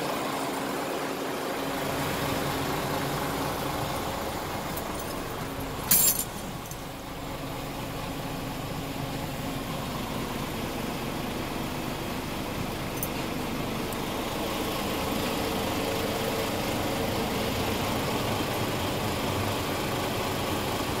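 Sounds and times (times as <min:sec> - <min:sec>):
diesel engine idling: 0:00.0 - 0:21.0
sharp clatter: 0:04.8 - 0:06.9.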